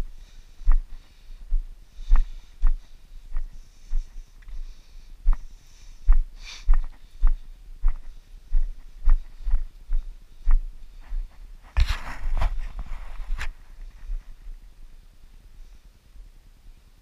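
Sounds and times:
person breathing: 0.0s - 11.4s
footsteps on dirt trail: 0.0s - 14.4s.

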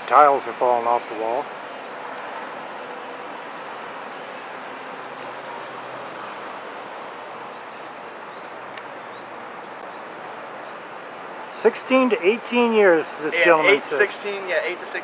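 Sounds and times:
background hiss: 0.0s - 15.0s
crickets trilling: 0.0s - 15.0s.

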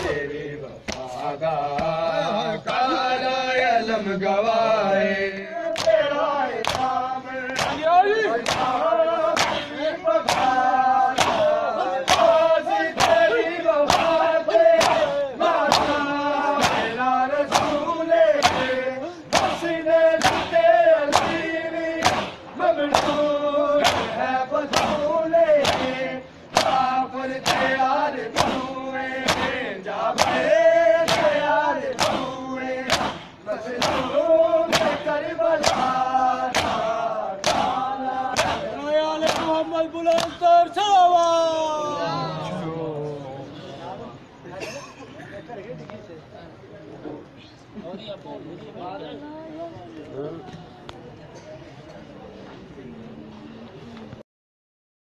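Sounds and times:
men chanting: 0.0s - 43.5s
hands slapping chests in unison: 0.8s - 2.0s, 5.3s - 40.4s.

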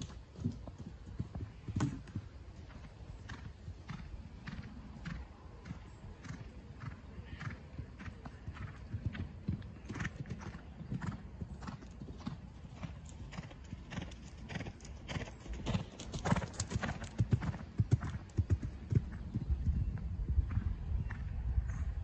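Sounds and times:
horse hooves cantering: 0.0s - 6.5s, 8.0s - 19.5s.

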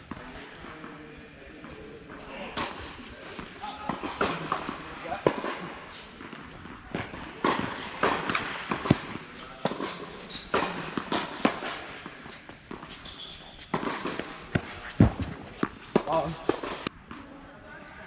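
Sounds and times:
tennis balls struck and bouncing: 1.6s - 17.0s
short high squeaks: 13.0s - 13.6s.

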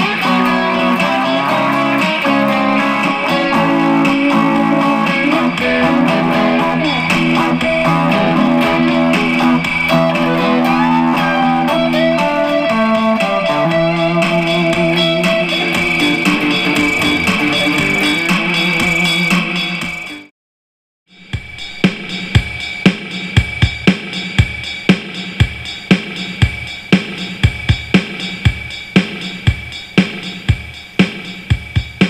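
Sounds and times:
electric guitar playing: 0.0s - 20.2s.

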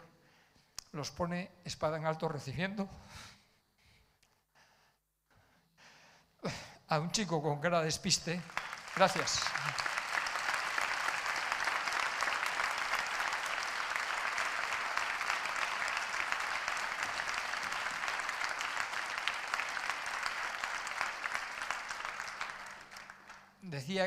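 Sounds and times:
audience applauding: 8.3s - 23.6s.

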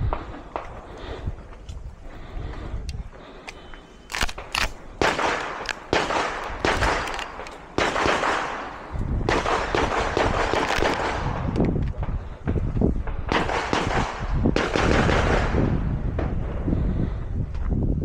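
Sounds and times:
gunshots echoing: 4.1s - 11.5s, 13.2s - 15.8s.

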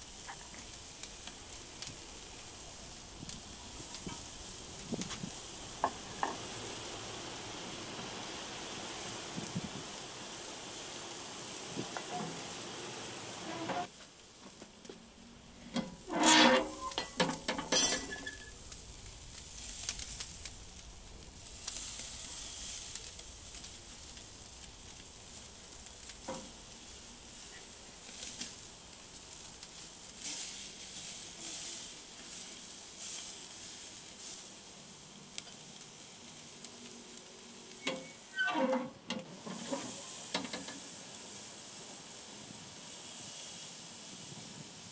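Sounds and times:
meat sizzling on grill: 0.0s - 44.9s
knocking and scraping on grill: 3.9s - 6.6s, 11.8s - 12.6s, 13.4s - 15.0s, 15.6s - 18.5s, 26.2s - 26.6s, 37.8s - 40.9s.

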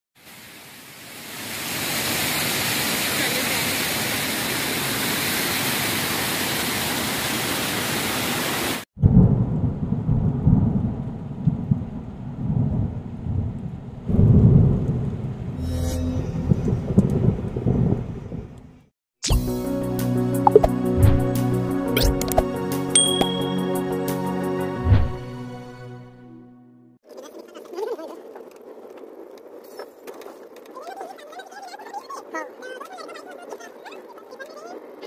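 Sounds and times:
waterfall rushing over weir: 0.3s - 8.8s
deep thunder-like rumble: 9.0s - 15.6s, 16.4s - 18.8s.

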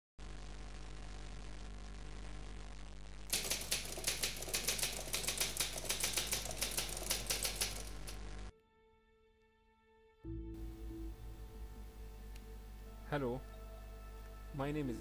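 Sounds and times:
low hum and hiss: 0.2s - 8.5s, 10.3s - 15.0s
typewriter key clacks: 3.3s - 8.2s.

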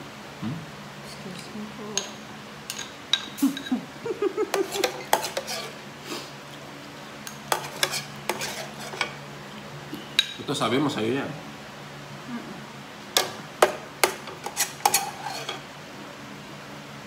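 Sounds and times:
cutlery clinking against dishes: 2.0s - 3.8s, 4.5s - 5.7s, 7.3s - 9.2s, 10.2s - 10.4s, 13.2s - 15.6s.

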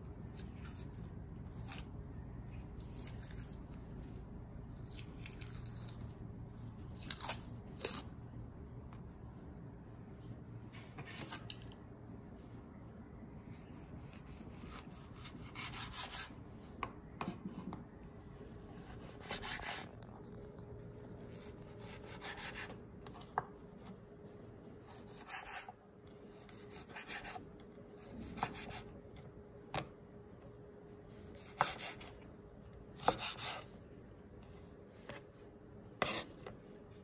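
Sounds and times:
faint steady hum: 0.0s - 37.0s
knife scraping through sausage: 36.0s - 36.4s.

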